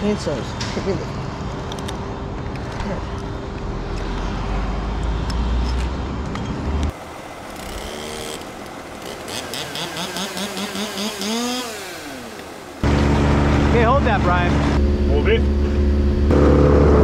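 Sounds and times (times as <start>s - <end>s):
motor revving: 7.6s - 13.6s
heavy engine droning: 7.6s - 17.0s.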